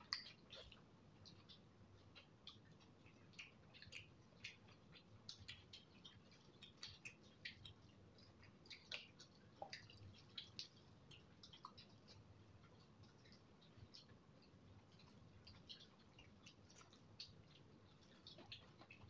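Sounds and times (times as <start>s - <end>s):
wet chewing clicks and smacks: 0.0s - 19.0s.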